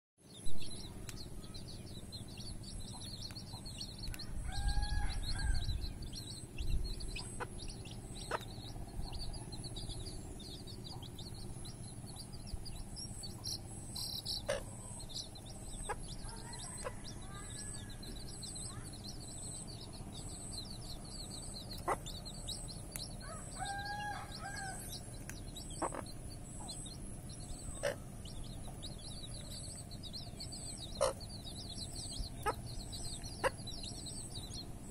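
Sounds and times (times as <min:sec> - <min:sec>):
chicks peeping: 0:00.3 - 0:34.9.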